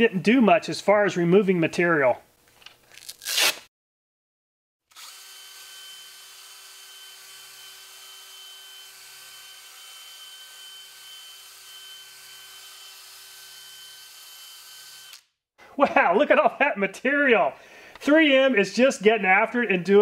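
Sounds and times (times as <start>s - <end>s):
drill motor whine: 4.9s - 15.2s.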